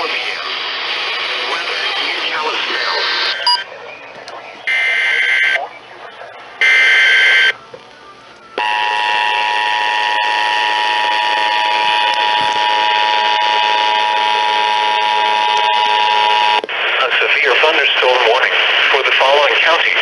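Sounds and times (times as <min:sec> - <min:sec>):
digital data header burst: 0:06.6 - 0:07.6
two-tone attention signal: 0:06.6 - 0:07.6, 0:08.6 - 0:16.6.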